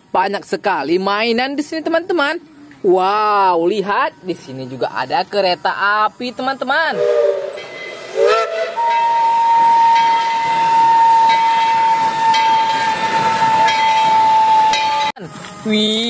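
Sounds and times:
steam locomotive whistle: 6.9s - 15.2s.

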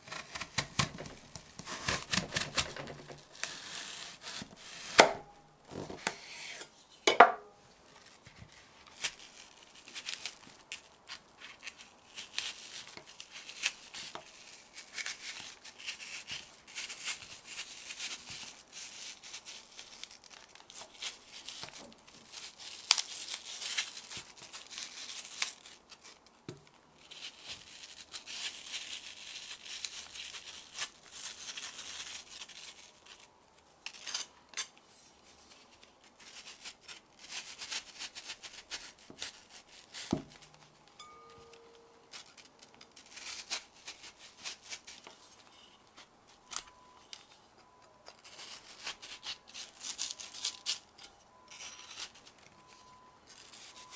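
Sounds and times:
knife slicing apple: 0.0s - 7.3s.

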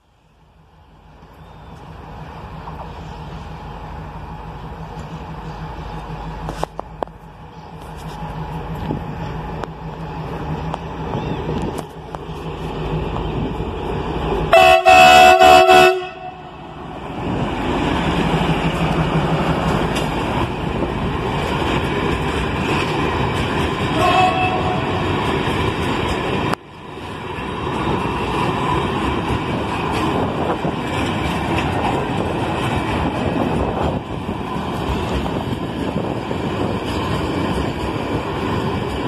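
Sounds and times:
diesel locomotive engine: 0.0s - 39.0s
train wheels on rail: 0.0s - 39.0s
locomotive horn: 14.5s - 16.6s, 23.9s - 25.1s.

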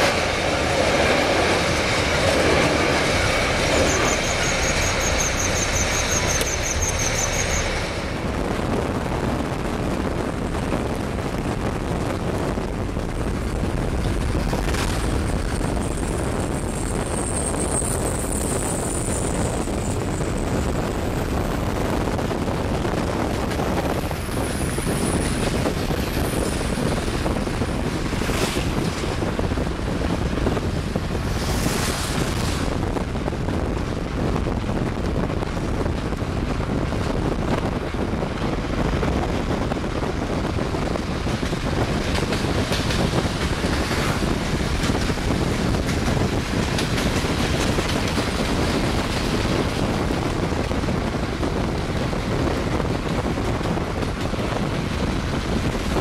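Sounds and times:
wind noise: 0.0s - 56.0s
tyres on wet road: 19.5s - 56.0s.

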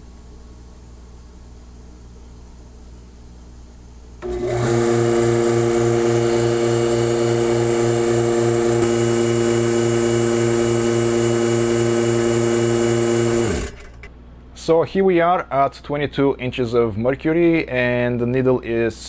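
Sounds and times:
electric vacuum pump humming: 0.0s - 14.2s.

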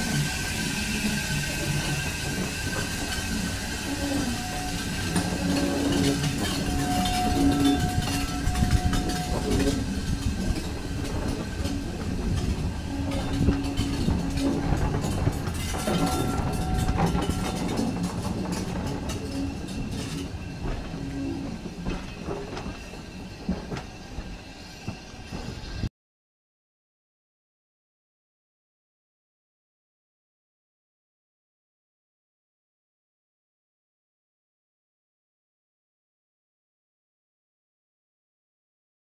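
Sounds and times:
train wheels clacking on rails: 0.0s - 25.9s.

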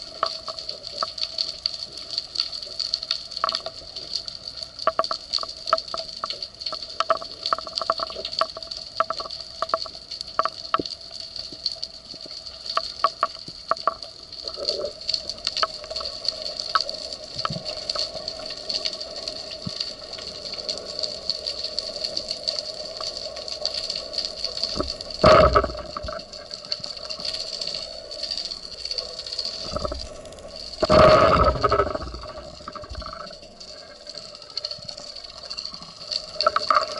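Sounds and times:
crackling clicks: 0.0s - 36.9s
underwater hiss: 17.2s - 36.9s.

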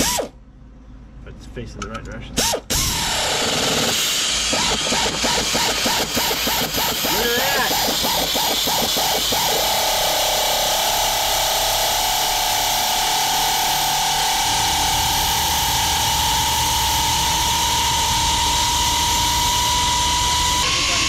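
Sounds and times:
air ratchet whining: 0.0s - 0.4s, 2.4s - 21.0s.

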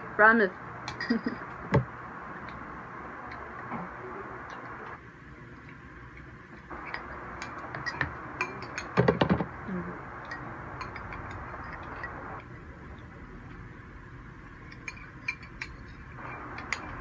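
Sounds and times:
spoon clinking against bowl: 6.8s - 9.0s, 10.2s - 12.2s, 14.6s - 17.0s.

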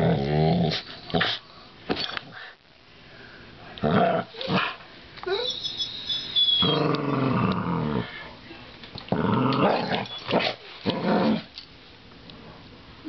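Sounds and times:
dog growling: 6.6s - 8.2s, 9.1s - 11.5s.

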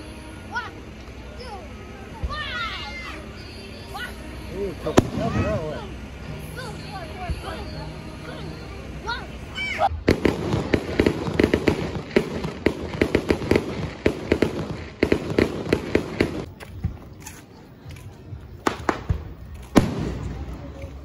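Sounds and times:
fireworks bangs and crackles: 4.8s - 6.2s, 9.9s - 17.3s, 17.9s - 21.0s.

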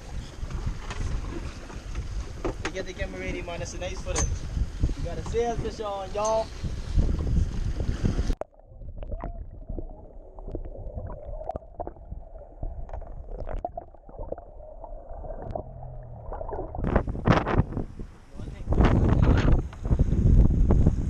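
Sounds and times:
wind and boat noise: 0.0s - 21.0s
muffled underwater gurgling: 8.4s - 17.5s
steady underwater hum: 8.5s - 18.3s
underwater clicks and pops: 12.8s - 17.6s.

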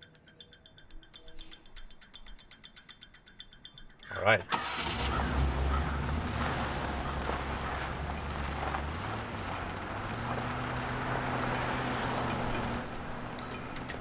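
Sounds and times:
vehicle engine humming: 3.8s - 14.0s.

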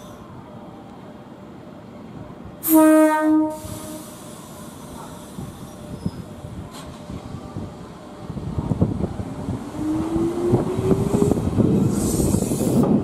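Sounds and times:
train rumble moving off: 0.0s - 13.0s
train horn blast: 2.6s - 4.2s
hiss: 3.5s - 6.3s, 11.2s - 13.0s.

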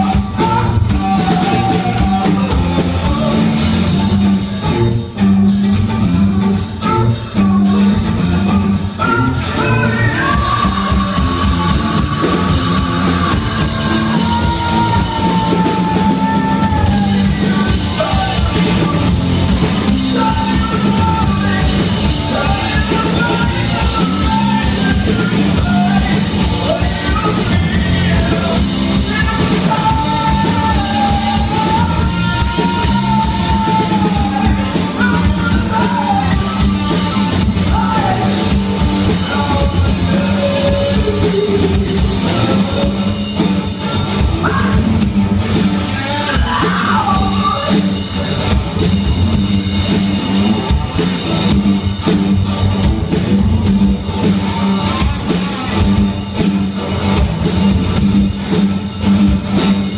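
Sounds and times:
woman singing lead: 0.0s - 3.9s, 6.3s - 45.1s, 45.8s - 48.6s
distorted electric guitars: 0.0s - 59.9s
drum kit: 0.0s - 59.9s.

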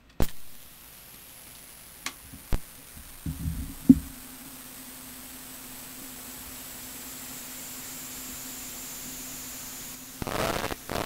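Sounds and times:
steady low hum: 0.0s - 11.0s
tape hiss: 0.0s - 11.0s
low thumps of tape: 2.0s - 4.5s.

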